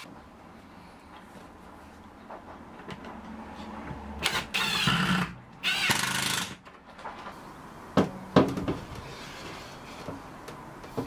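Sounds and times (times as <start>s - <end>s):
cordless drill driving screws: 4.2s - 6.6s.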